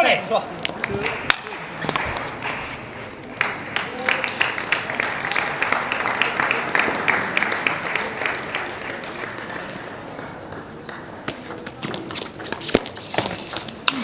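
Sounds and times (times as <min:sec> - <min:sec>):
scattered applause: 0:00.4 - 0:11.3.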